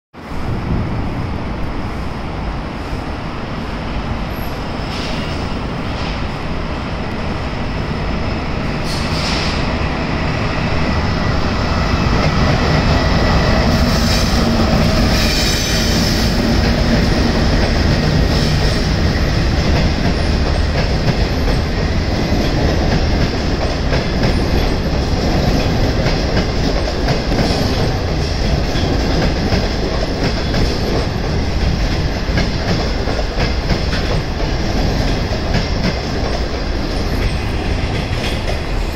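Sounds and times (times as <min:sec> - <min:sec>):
electric locomotive passing: 0:00.2 - 0:38.9
train wheels clattering on rails: 0:08.8 - 0:38.9.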